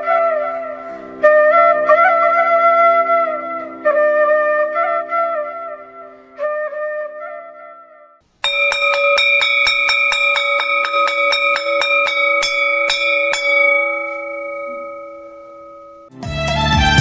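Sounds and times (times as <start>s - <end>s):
metal bell struck rapidly: 8.4s - 16.1s.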